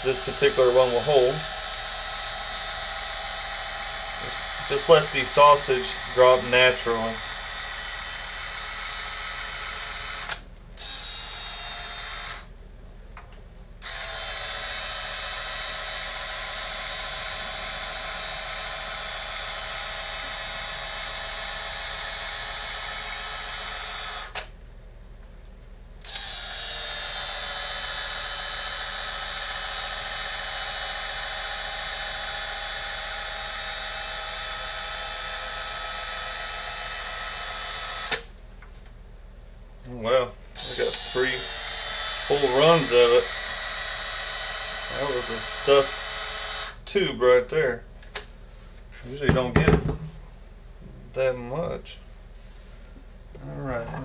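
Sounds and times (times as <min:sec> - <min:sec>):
motorized gun motor whine: 0:00.0 - 0:12.5, 0:13.8 - 0:24.5, 0:26.0 - 0:38.3, 0:40.6 - 0:46.8.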